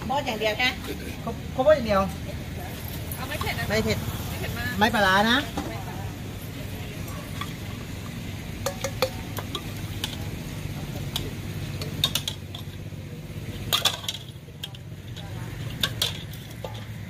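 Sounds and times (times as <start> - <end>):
metal spoon clinking on bowl: 8.6 - 9.7.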